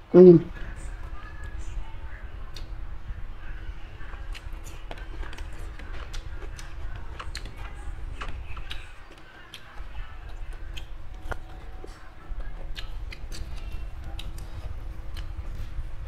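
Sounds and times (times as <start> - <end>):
faint steady hum: 0.0 - 16.0
lip smacks: 2.5 - 2.7, 4.3 - 11.4, 12.4 - 15.7
person chewing food: 4.2 - 16.0.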